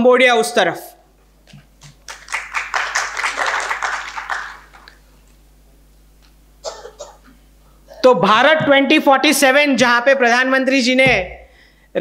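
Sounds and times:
audience applause: 1.8 - 5.0.

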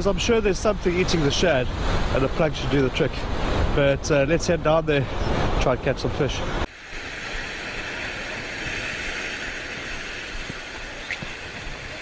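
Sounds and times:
sea surf breaking on rocks: 6.7 - 12.0.

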